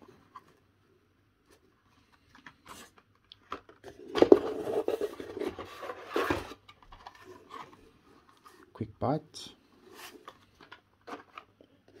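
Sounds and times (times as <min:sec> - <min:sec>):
packaging scraping and crackling: 0:02.0 - 0:08.7.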